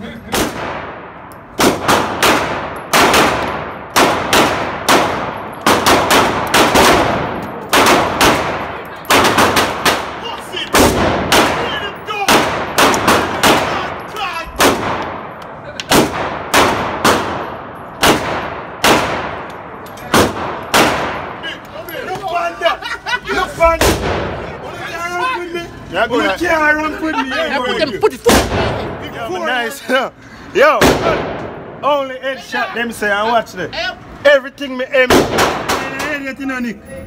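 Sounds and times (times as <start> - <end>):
pistol shots with echo: 0.3 - 21.4, 35.1 - 36.0.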